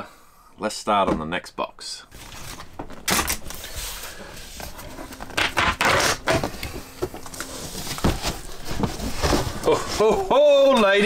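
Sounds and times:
cardboard scraping and crackling: 2.2s - 11.0s.

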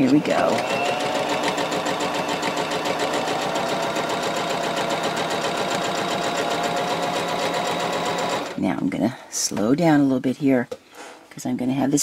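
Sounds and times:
sewing machine running: 0.0s - 8.6s.

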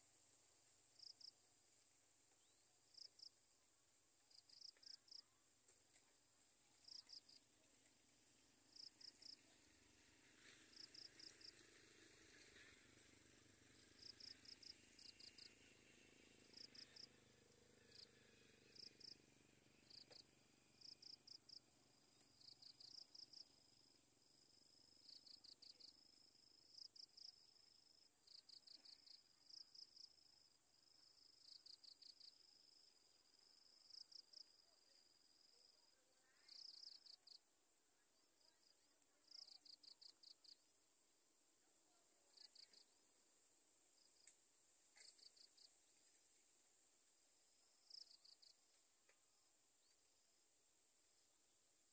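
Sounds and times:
insects chirping: 10.4s - 17.2s, 19.8s - 30.4s, 38.6s - 40.7s, 44.9s - 46.4s, 47.4s - 48.8s.

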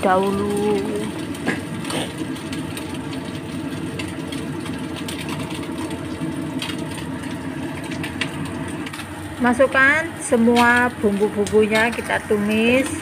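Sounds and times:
fish frying in oil: 0.0s - 13.0s
range hood fan humming: 0.0s - 13.0s.

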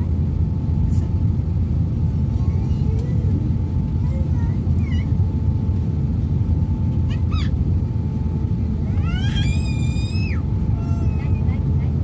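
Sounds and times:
jet engines rumbling: 0.0s - 12.0s
high-pitched cries: 8.9s - 11.4s.

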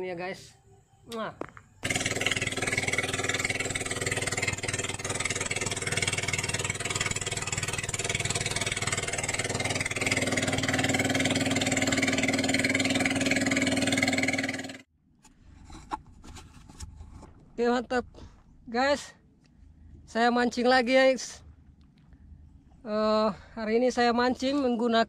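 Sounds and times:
small boat motor running: 1.8s - 14.9s.

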